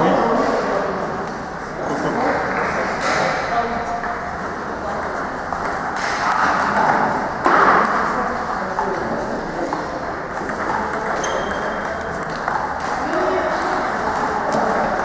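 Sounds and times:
ping-pong ball hits: 0:02.4 - 0:15.0.

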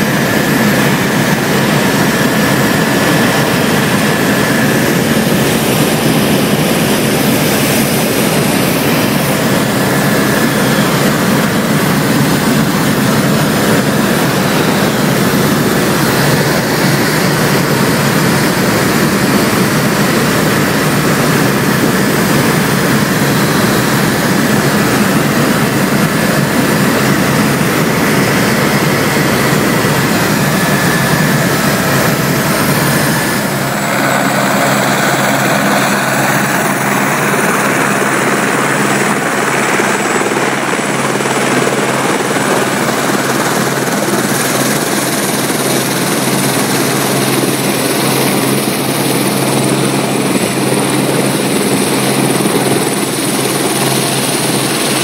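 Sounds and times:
aircraft engine drone: 0:00.0 - 0:55.0.

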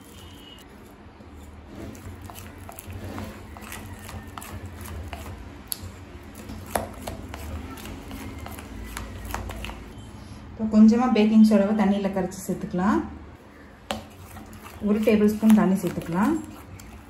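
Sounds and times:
spoon stirring thick batter: 0:00.0 - 0:10.0, 0:13.4 - 0:17.0.

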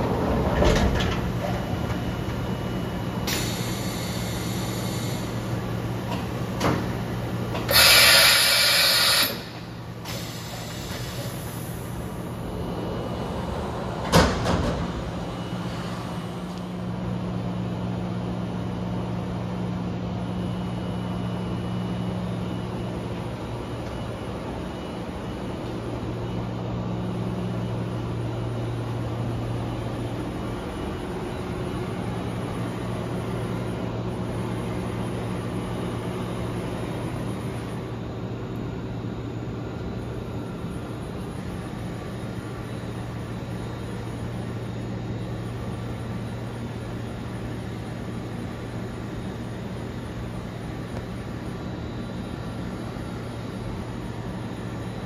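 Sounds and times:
loud short hiss: 0:07.7 - 0:11.3.

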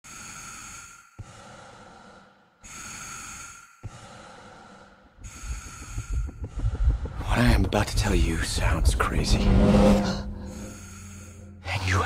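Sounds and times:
slow heavy breathing: 0:00.0 - 0:07.3, 0:09.3 - 0:11.7
low pulsing rumble: 0:05.2 - 0:12.0.

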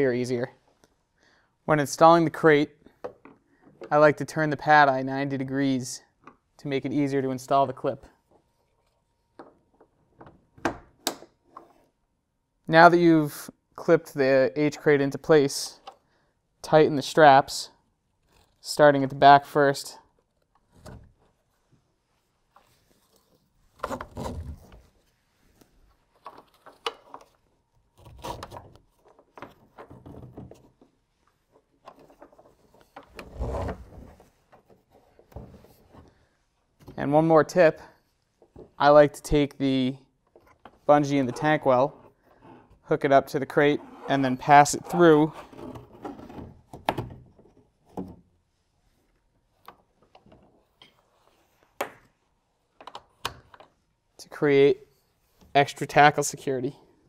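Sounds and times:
plastic crate scraping: 0:33.1 - 0:34.5.

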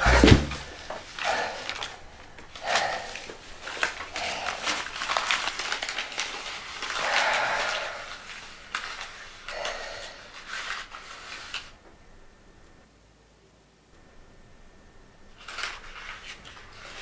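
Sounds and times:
paper banknotes crinkling: 0:00.0 - 0:11.8, 0:15.3 - 0:17.0.

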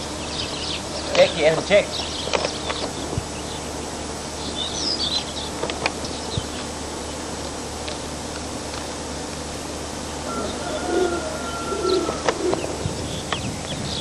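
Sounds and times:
high bird chirps: 0:00.0 - 0:06.7
steady background hiss: 0:00.0 - 0:14.0.

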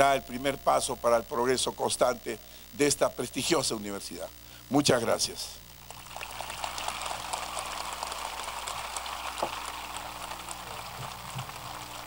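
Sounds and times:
crowd applauding: 0:05.9 - 0:12.0.

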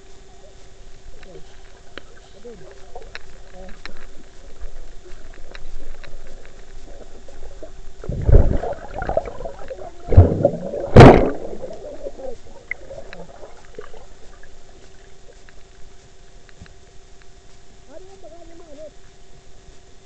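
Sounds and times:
muffled underwater water sloshing: 0:00.0 - 0:17.7
water surging against case: 0:01.2 - 0:15.7.

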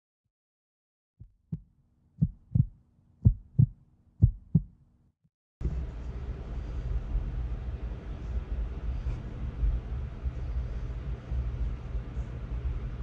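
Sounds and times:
heartbeat thumps: 0:01.2 - 0:04.8
faint low hum: 0:05.6 - 0:13.0.

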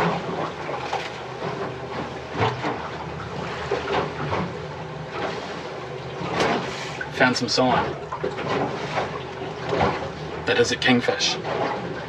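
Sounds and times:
outboard motor hum: 0:00.0 - 0:12.0
water sloshing against hull: 0:00.0 - 0:12.0.

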